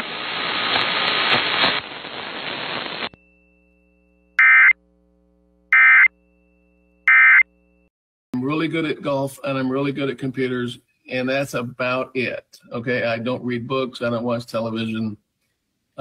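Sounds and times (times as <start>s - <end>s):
radio static hiss: 0.0s - 3.2s
warbling data-tone bursts: 4.4s - 4.8s.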